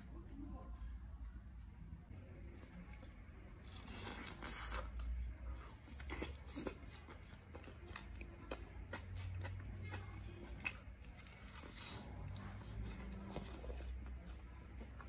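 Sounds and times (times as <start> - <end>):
man chewing: 3.6 - 15.0.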